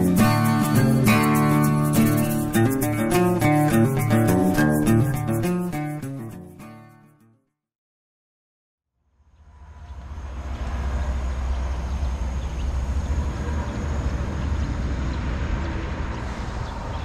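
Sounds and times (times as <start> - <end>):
vehicle driving on road: 9.2 - 17.0.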